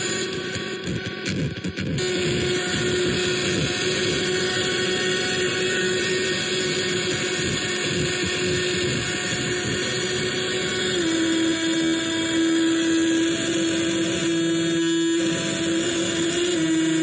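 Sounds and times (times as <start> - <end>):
harsh synthesizer noise drone: 0.0 - 17.0
steady humming tone: 0.0 - 17.0.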